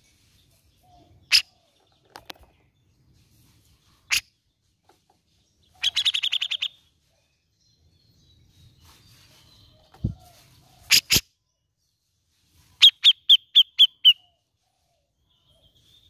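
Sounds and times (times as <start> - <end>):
bird chattering: 5.7 - 6.8.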